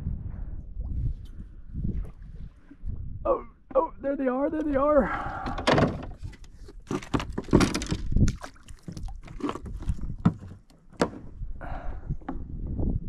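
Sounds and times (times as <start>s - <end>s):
water splashing around kayak: 4.7s - 12.4s.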